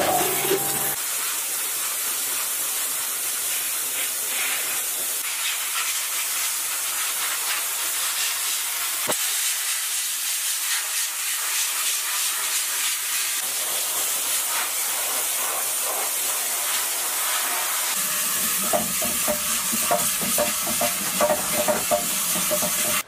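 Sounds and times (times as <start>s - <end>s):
sandblasting gun hissing: 0.0s - 23.0s
sharp knocks and rattles: 18.0s - 23.0s.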